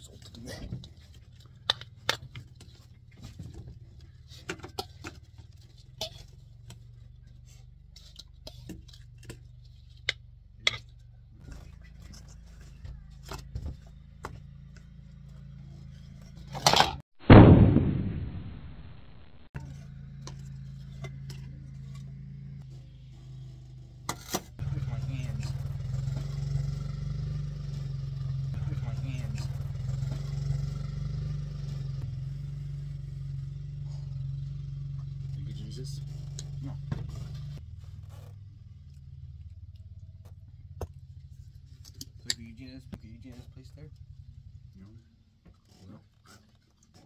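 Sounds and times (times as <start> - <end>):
loud burst of noise: 17.2 - 19.5.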